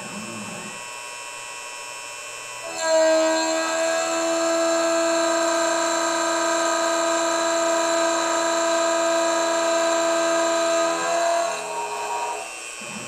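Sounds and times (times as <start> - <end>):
end mill milling steel whine: 0.0 - 13.0.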